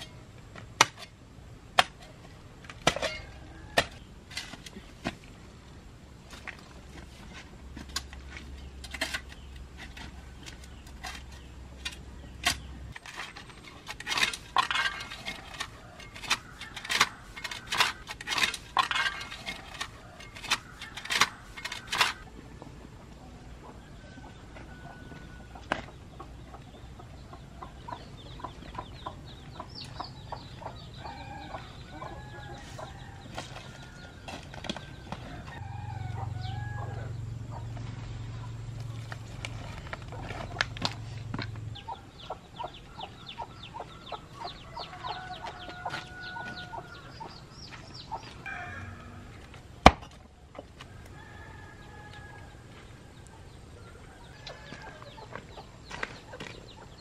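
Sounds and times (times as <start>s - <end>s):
chickens clucking: 12.2s - 49.6s, 52.6s - 57.0s.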